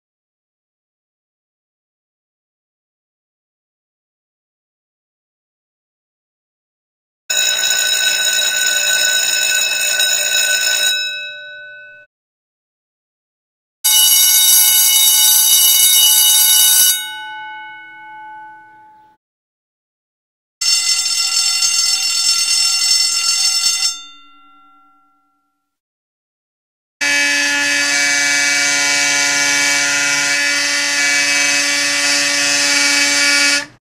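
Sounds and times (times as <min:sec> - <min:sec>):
fire alarm horn steady tone: 0:07.3 - 0:12.1, 0:13.8 - 0:17.4, 0:20.6 - 0:25.2, 0:27.0 - 0:33.8
larger bell ringing: 0:07.3 - 0:12.1, 0:13.9 - 0:19.2, 0:20.6 - 0:25.6
vibrating school bell ringing: 0:07.3 - 0:12.1, 0:13.9 - 0:19.2, 0:20.6 - 0:25.6.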